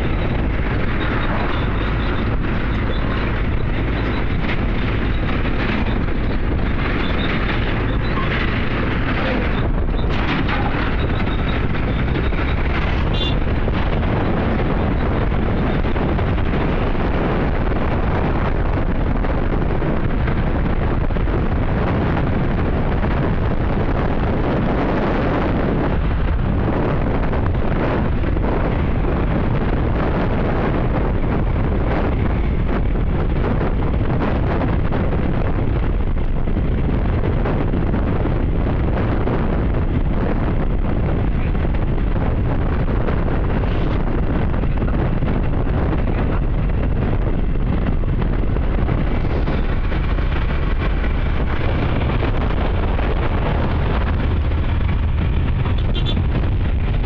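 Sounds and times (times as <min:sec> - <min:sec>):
motorcycle engine: 0:00.0 - 0:21.7, 0:46.2 - 0:57.0
road noise: 0:00.0 - 0:57.0
wind buffeting microphone: 0:00.0 - 0:57.0.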